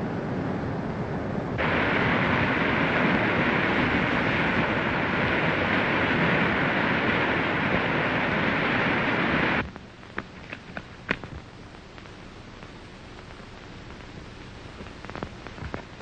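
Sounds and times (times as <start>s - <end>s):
waterfall rushing: 1.6s - 9.6s.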